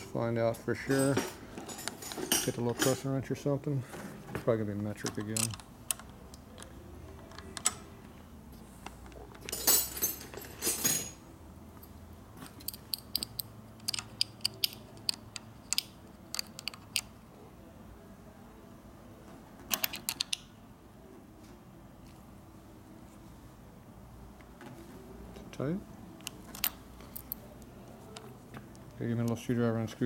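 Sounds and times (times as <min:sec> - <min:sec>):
wrench clicking on metal: 0:12.6 - 0:17.1.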